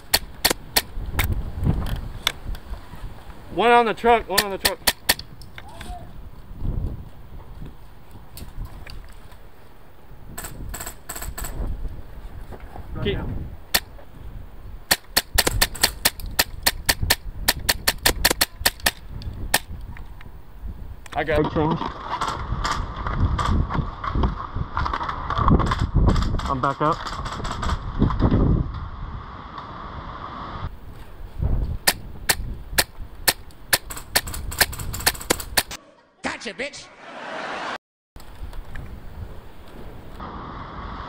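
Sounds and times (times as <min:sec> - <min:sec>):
airsoft rifle shots: 0:00.0 - 0:01.0, 0:04.3 - 0:05.3, 0:14.9 - 0:19.8, 0:31.8 - 0:35.8
wind rumbling on microphone: 0:00.0 - 0:03.6, 0:05.0 - 0:35.7, 0:38.2 - 0:41.0.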